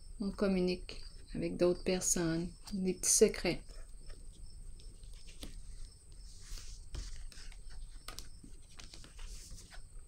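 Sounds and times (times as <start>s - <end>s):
low room hum: 0.0s - 10.0s
cards rustling: 3.8s - 9.9s.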